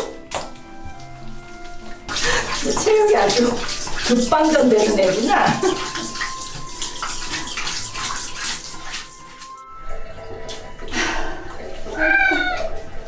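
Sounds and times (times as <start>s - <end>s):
background music: 0.0s - 13.0s
water spraying from shower head: 1.2s - 9.6s.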